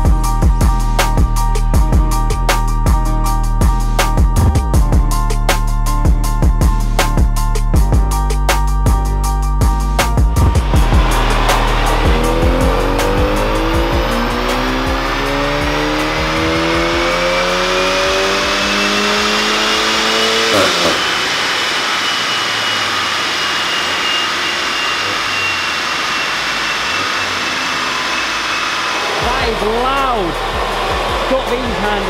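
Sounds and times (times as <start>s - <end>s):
car engine revving loudly: 10.2s - 32.0s
high whine of spinning rollers: 10.3s - 32.0s.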